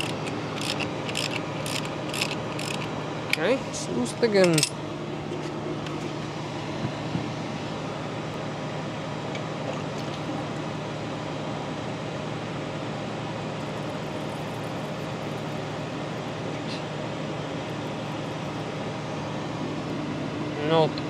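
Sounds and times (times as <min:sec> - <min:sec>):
machine hum and hiss: 0:00.0 - 0:21.0.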